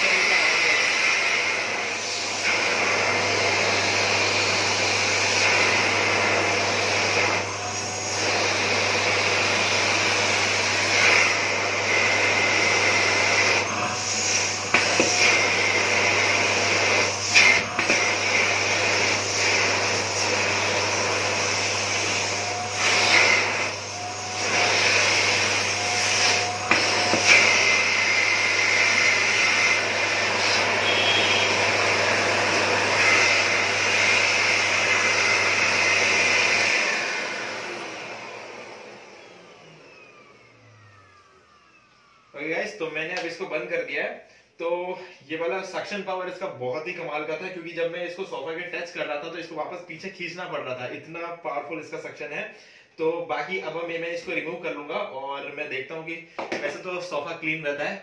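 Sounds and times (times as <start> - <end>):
vacuum cleaner running: 0.0 - 43.9, 53.0 - 58.0.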